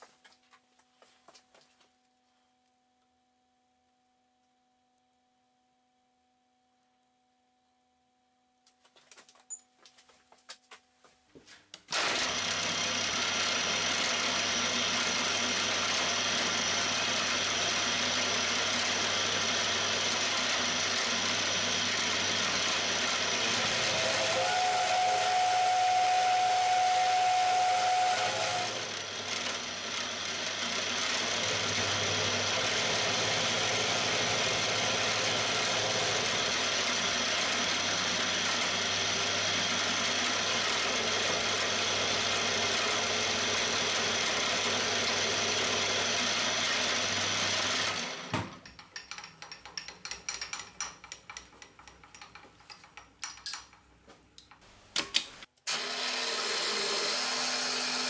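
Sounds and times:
milling machine running: 11.9 - 48.4, 55.7 - 58.0.

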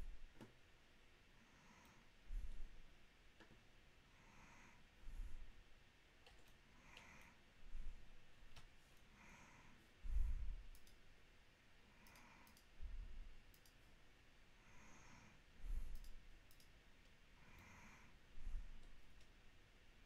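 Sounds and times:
close-miked breathing: 1.3 - 3.0, 4.0 - 5.7, 6.5 - 10.9, 11.8 - 13.7, 14.5 - 16.6, 17.3 - 19.2
computer mouse clicks: 6.2 - 7.4, 10.6 - 11.1, 12.0 - 12.8, 13.5 - 14.0, 15.9 - 17.2.

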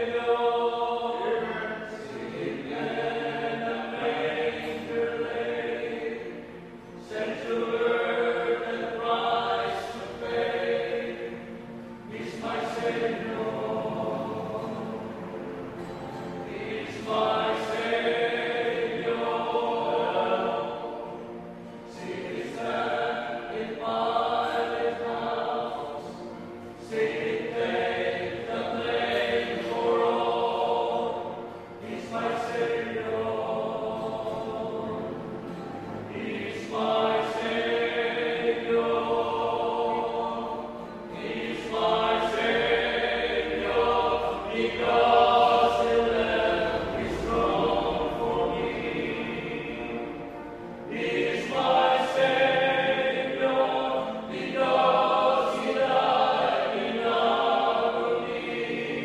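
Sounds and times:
male vocal quartet singing: 0.0 - 59.0.

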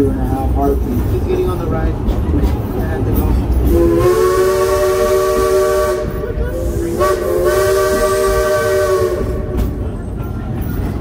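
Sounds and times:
train running rumble: 0.0 - 11.0
steam whistle blasts: 3.7 - 9.6.

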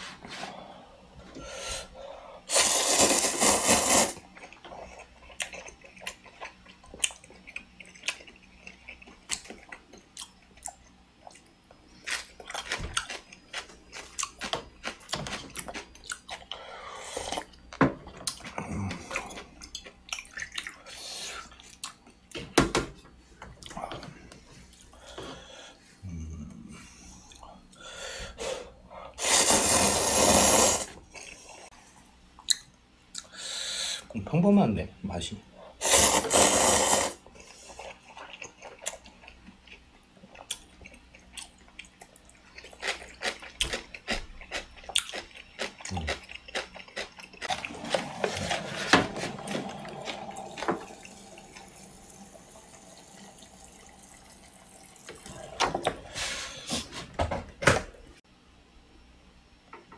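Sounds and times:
noodles slurped: 2.5 - 4.6, 29.2 - 31.4, 35.8 - 39.0
close-up chewing: 4.2 - 17.6, 37.2 - 51.8
sip of broth: 35.8 - 37.2.

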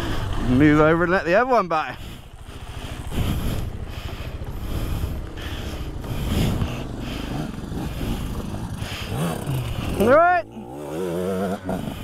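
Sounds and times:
motorcycle engine running: 0.0 - 12.0
wind noise: 3.0 - 4.0.

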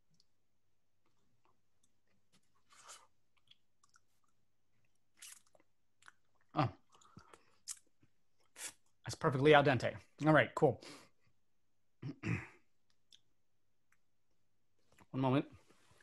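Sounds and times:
person chewing crunchy food: 1.1 - 8.6.

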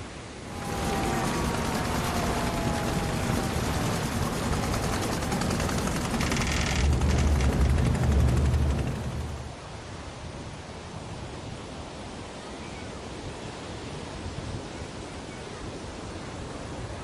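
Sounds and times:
falling whine: 0.3 - 9.8
engine rumbling and popping: 0.6 - 9.6
quick rattling: 0.6 - 9.6.

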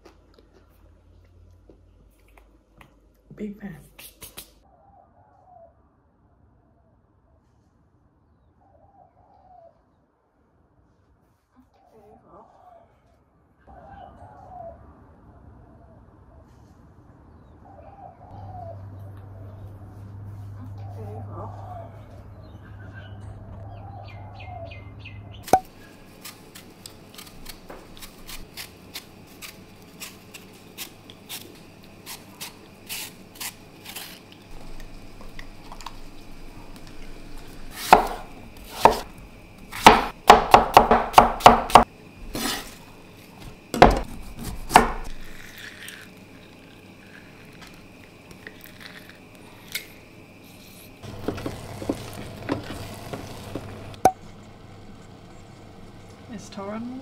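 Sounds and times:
knife chopping on wooden board: 37.7 - 39.1, 39.7 - 42.6, 43.8 - 45.1.

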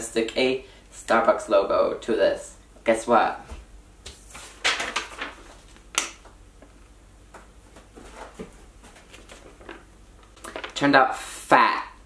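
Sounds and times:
paper rustling: 4.1 - 5.9, 7.7 - 10.8.

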